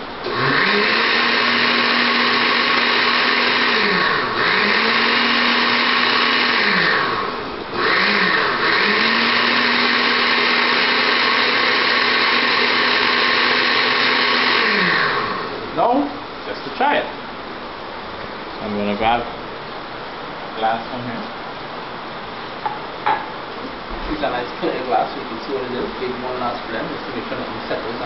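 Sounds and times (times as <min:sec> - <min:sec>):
blender motor running: 0:00.2 - 0:15.7.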